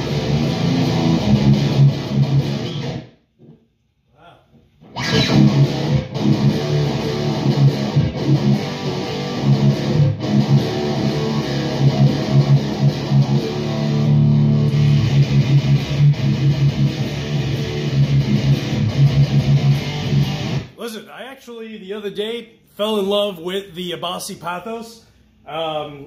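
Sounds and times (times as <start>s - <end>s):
distorted electric guitar riffing: 0.0s - 3.1s, 4.8s - 20.8s.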